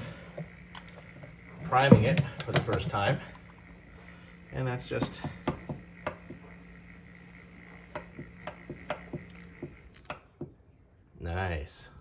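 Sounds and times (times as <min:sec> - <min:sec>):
soap dispenser pump clicks: 0:02.1 - 0:03.4.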